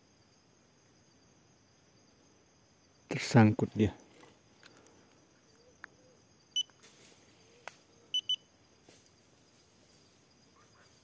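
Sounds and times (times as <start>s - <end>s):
short high beeps: 8.2s - 8.4s.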